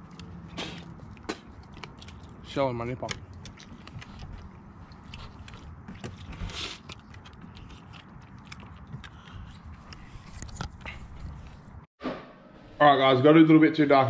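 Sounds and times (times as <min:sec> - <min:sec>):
person chewing: 0:00.0 - 0:02.5, 0:03.2 - 0:11.6
camera handling rumble: 0:08.8 - 0:11.8.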